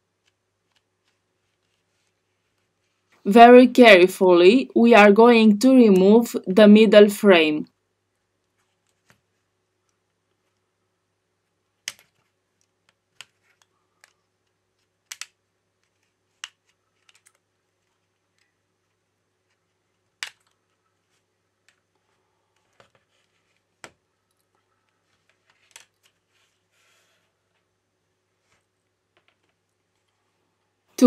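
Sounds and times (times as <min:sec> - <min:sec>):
faint scraping and handling: 0:24.5 - 0:27.7.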